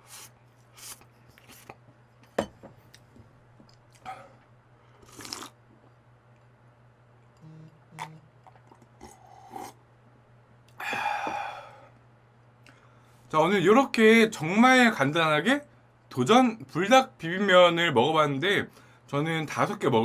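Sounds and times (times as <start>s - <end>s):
man sipping and swallowing: 3.7s - 6.0s, 7.3s - 9.8s
man exhaling breathily: 10.8s - 12.0s.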